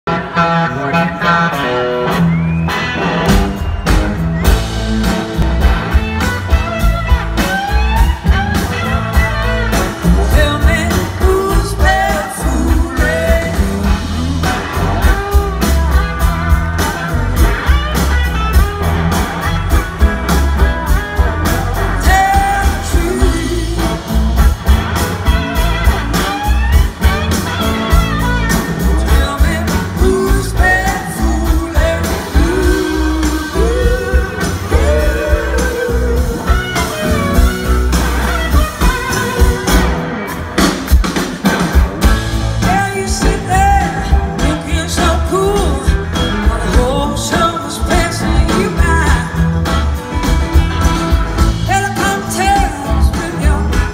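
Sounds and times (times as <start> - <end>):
bass guitar: 0.0 - 53.9
electric guitars: 0.0 - 53.9
drums keeping a beat: 2.0 - 53.9
person singing: 10.0 - 16.0, 21.6 - 24.4, 28.8 - 37.2, 42.6 - 49.5, 51.6 - 53.9.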